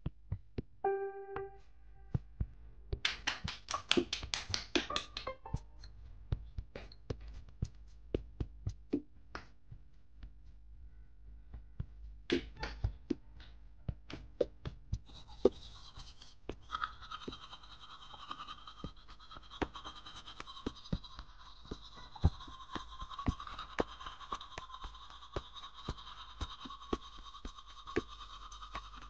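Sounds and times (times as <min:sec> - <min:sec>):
toothbrush brushing teeth: 0:15.0 - 0:29.0.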